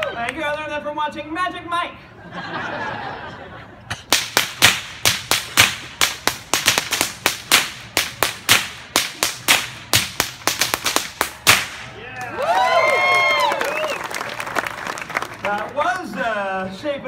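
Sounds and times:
whips cracking: 3.9 - 12.0.

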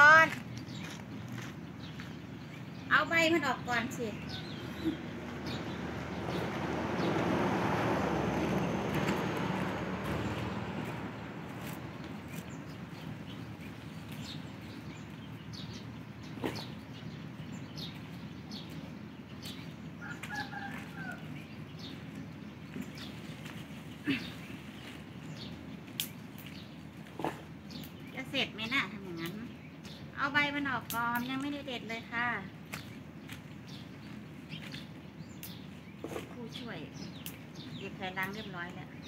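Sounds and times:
birds chirping: 0.0 - 39.0
leafy branches rustling: 20.3 - 28.8.

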